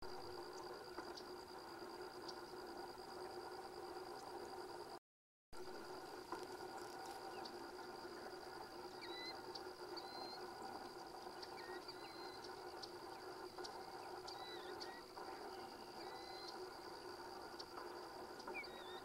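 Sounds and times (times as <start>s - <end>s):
thin high steady tone: 5.6s - 19.0s
whistled bird chirps: 8.8s - 17.8s, 18.4s - 19.0s.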